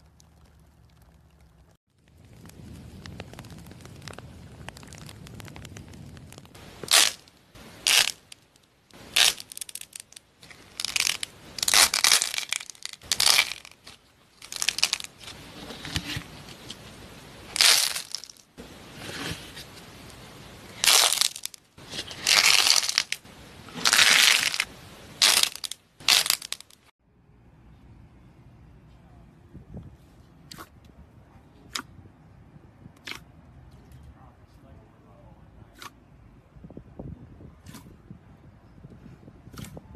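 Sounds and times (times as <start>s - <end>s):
slime crunching: 2.9s - 16.7s, 17.5s - 18.4s, 20.8s - 26.7s.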